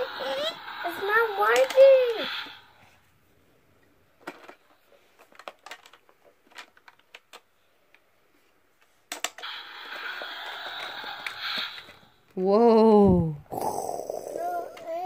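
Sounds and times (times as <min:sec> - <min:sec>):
toy electronic rushing sound: 0:00.0 - 0:02.7, 0:09.4 - 0:12.0
plastic toy clicks and knocks: 0:01.4 - 0:02.1, 0:05.2 - 0:07.5, 0:09.1 - 0:09.5.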